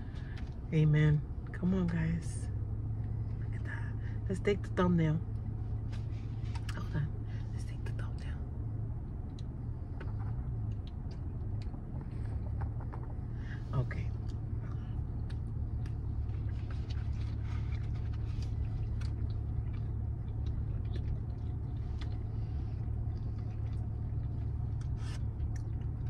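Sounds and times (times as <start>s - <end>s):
car engine idling: 0.0s - 26.0s
person chewing: 14.2s - 26.0s.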